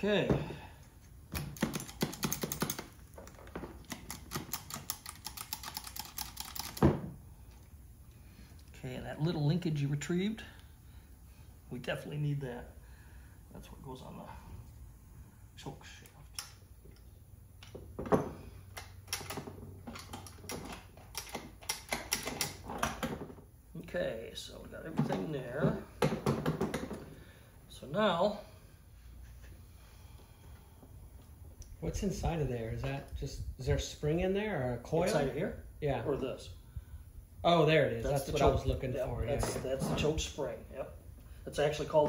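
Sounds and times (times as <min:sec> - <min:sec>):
small metallic clicks and rattles: 0:01.6 - 0:06.8, 0:18.7 - 0:23.1.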